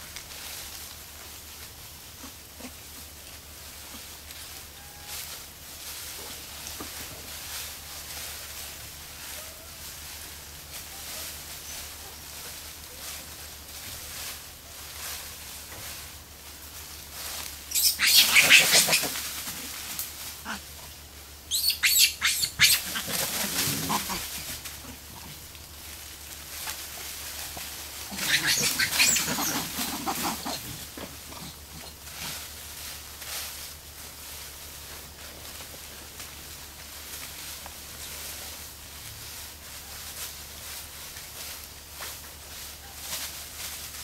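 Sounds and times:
macaques calling: 17.7 - 19.7, 20.3 - 20.9, 21.5 - 25.4, 27.0 - 32.0.

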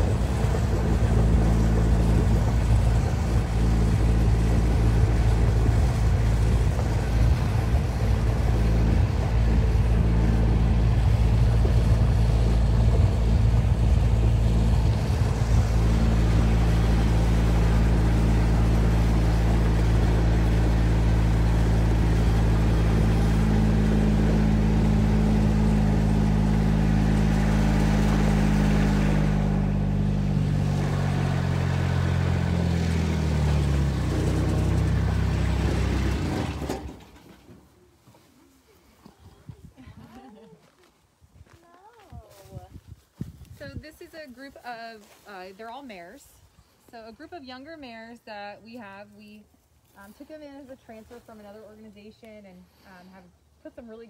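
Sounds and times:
vehicle engine running: 0.0 - 38.2, 43.5 - 54.0
vehicle knocks and jolts: 34.0 - 37.7.

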